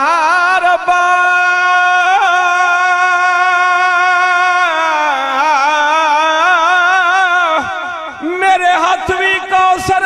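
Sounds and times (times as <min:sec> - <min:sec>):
man singing: 0:00.0 - 0:10.0.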